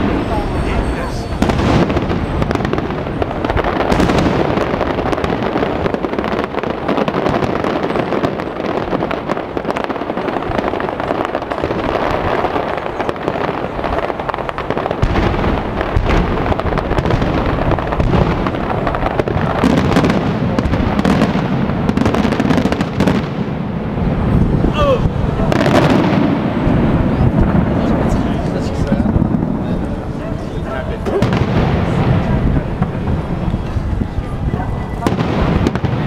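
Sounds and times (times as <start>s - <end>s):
fireworks booming: 0.0s - 36.0s.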